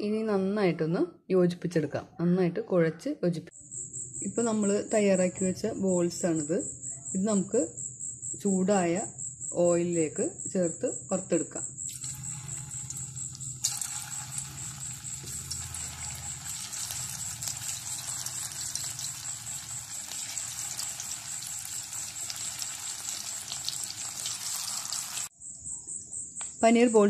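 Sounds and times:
food sizzling in hot oil: 11.9 - 25.3.

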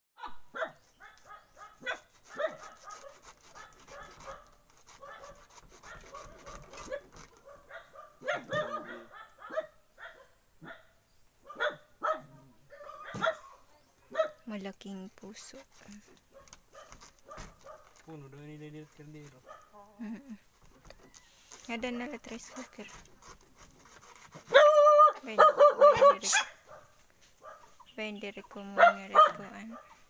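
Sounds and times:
dog barking and yipping: 0.2 - 14.4, 16.3 - 18.0, 19.4 - 19.8, 24.4 - 27.8, 28.7 - 30.0.

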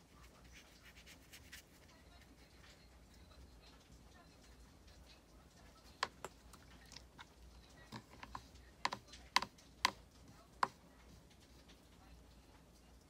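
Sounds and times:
light sharp clicks and taps: 4.8 - 13.0.

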